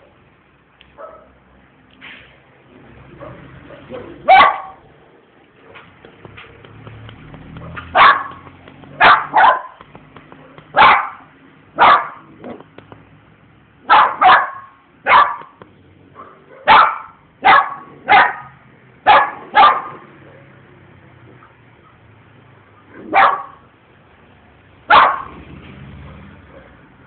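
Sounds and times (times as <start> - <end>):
dog barking: 1.0 - 1.4, 3.2 - 4.9, 7.6 - 8.4, 9.0 - 9.8, 10.4 - 12.6, 13.8 - 15.6, 16.2 - 20.6, 22.8 - 23.7, 24.9 - 25.4, 26.0 - 26.8.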